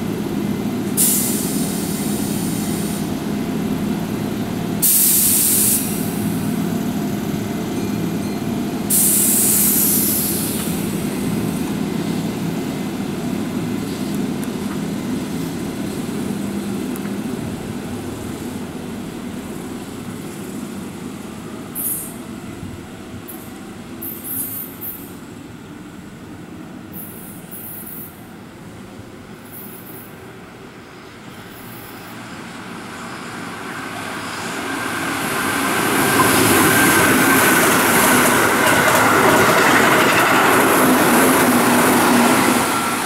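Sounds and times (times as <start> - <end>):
compressed air hiss: 1.0 - 3.1, 4.8 - 6.2, 8.9 - 11.0
electric train humming: 30.3 - 43.0.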